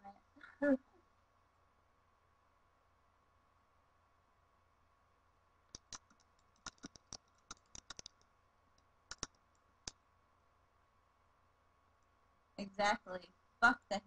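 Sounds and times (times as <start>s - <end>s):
keyboard typing clicks: 5.7s - 8.3s, 9.1s - 9.4s.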